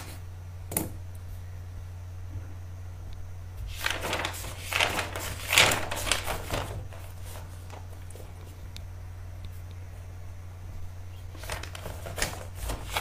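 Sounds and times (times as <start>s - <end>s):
steady low hum: 0.0s - 13.0s
rustling crinkling handling noise: 3.6s - 8.7s, 11.3s - 13.0s.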